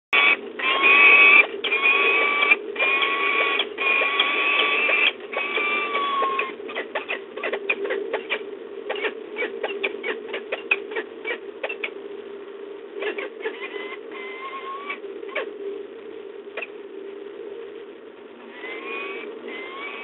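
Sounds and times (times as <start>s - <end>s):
rapid clicky chittering: 0.1s - 12.0s, 18.5s - 20.0s
falcons calling: 0.2s - 12.0s, 18.5s - 20.0s.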